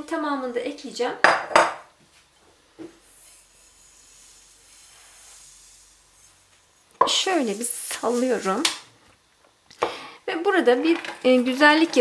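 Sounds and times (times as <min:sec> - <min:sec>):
sugar pouring hiss: 0:02.4 - 0:08.9.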